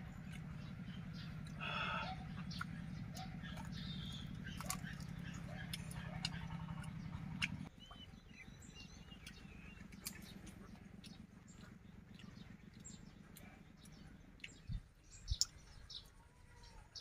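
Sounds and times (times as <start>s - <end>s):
birds chirping: 0.0s - 17.0s
low steady hum: 0.0s - 17.0s
person chewing: 4.4s - 7.7s.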